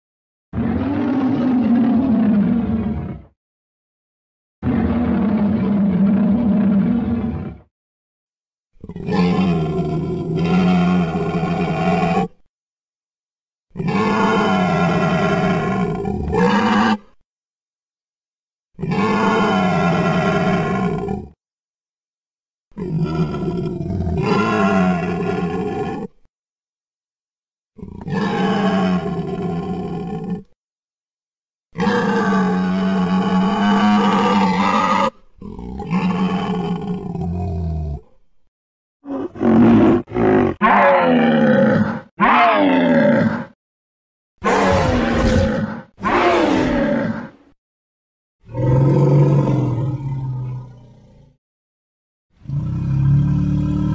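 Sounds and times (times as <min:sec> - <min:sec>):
dinosaur roars: 0:00.6 - 0:03.4, 0:04.6 - 0:07.7, 0:08.8 - 0:12.5, 0:13.8 - 0:17.2, 0:18.8 - 0:21.4, 0:22.8 - 0:26.3, 0:27.8 - 0:30.6, 0:31.8 - 0:38.2, 0:39.0 - 0:43.6, 0:44.4 - 0:47.6, 0:48.4 - 0:51.4, 0:52.4 - 0:53.9.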